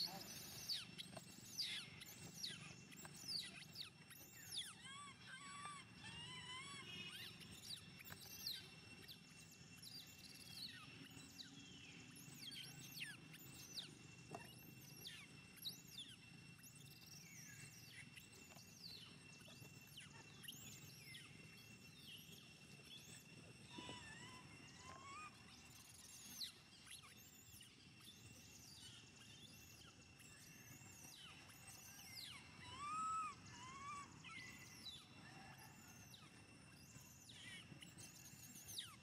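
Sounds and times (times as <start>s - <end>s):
thin steady high tone: 0.0s - 39.0s
monkeys squealing: 4.6s - 7.4s, 23.7s - 25.4s, 32.6s - 34.6s.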